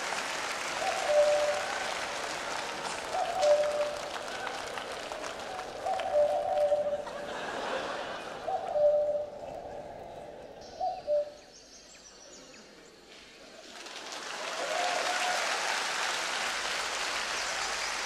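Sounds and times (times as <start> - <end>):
studio audience applause: 0.0 - 6.7, 13.6 - 18.0.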